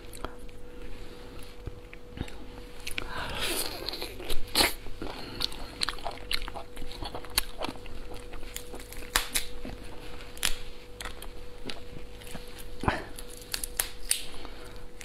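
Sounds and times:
lobster shell cracking: 5.6 - 9.6, 10.4 - 11.2, 13.2 - 14.4.

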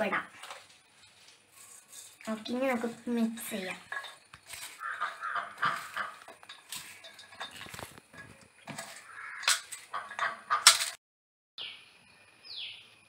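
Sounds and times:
cabbage rustling in bowl: 0.0 - 10.0
metal bowl knocking and clinking: 2.2 - 11.0.

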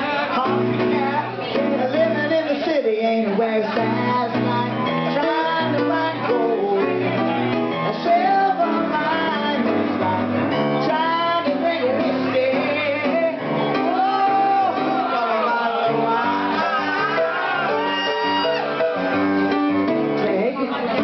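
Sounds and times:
woman singing into a microphone: 0.0 - 7.2, 7.8 - 16.7
piano accompaniment: 0.0 - 21.0.

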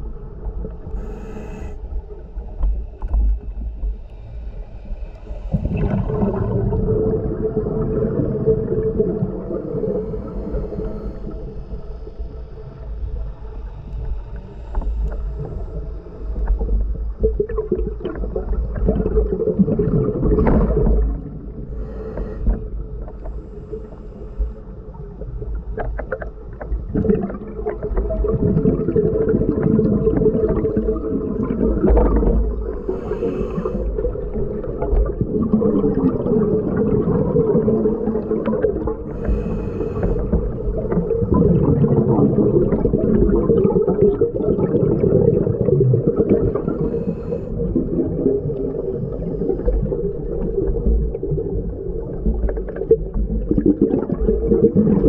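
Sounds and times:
muffled underwater hum: 0.0 - 55.0.

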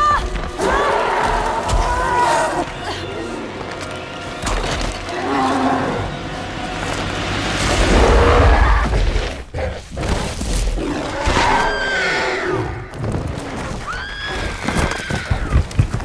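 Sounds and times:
orchestral score: 0.0 - 9.1.

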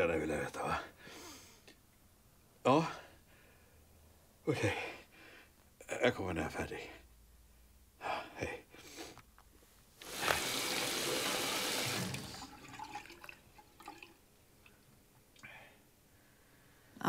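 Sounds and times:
water running from a tap: 10.0 - 14.1
water dripping: 10.1 - 15.4.

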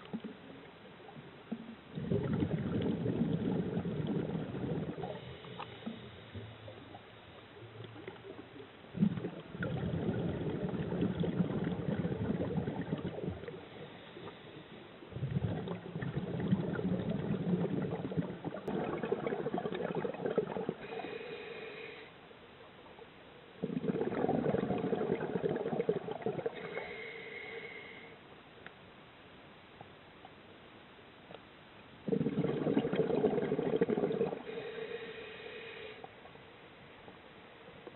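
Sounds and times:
exhaled bubbles rumbling: 1.5 - 7.1, 7.7 - 13.7, 15.1 - 21.0, 23.6 - 26.6, 32.0 - 34.5
diver inhaling through regulator: 4.8 - 6.6, 20.8 - 22.2, 26.5 - 28.2, 34.1 - 36.1.

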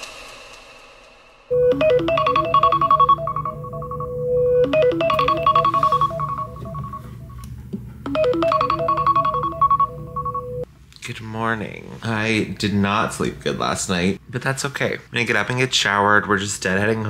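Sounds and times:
phone alarm melody: 1.5 - 7.4, 8.0 - 10.7.

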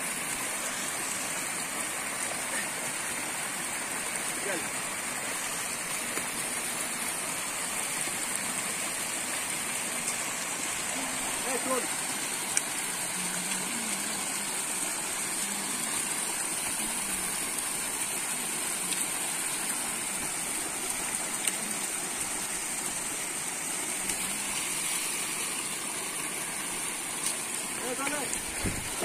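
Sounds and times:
steady rushing noise: 27.8 - 29.0.

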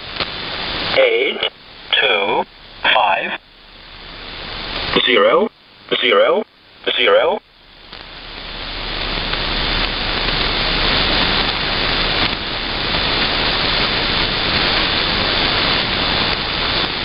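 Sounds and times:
shortwave radio static hiss: 0.0 - 17.0.

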